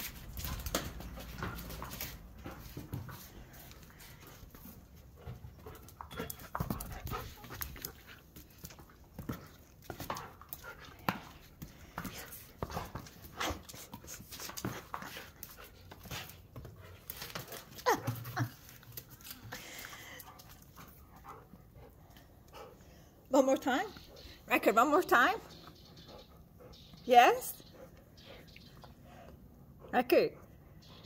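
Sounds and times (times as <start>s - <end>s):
dog panting: 1.4s - 18.2s, 19.4s - 23.2s, 25.4s - 27.0s.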